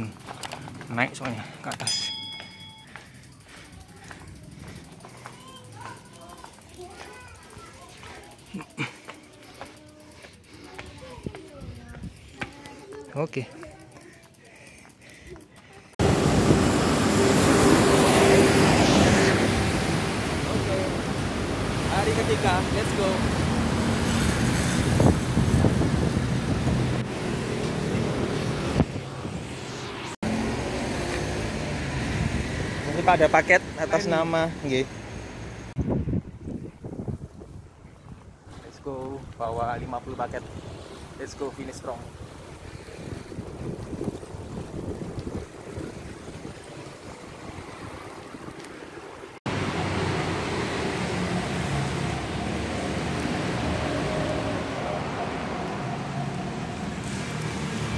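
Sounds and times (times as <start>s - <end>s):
road traffic: 0.0s - 57.9s
vehicle engine running: 2.4s - 12.4s
wind buffeting microphone: 23.3s - 29.8s, 35.8s - 49.3s.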